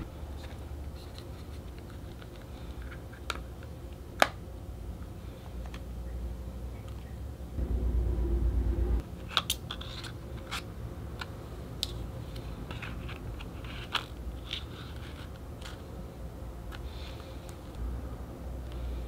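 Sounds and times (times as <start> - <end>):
low rumble: 7.6 - 9.1.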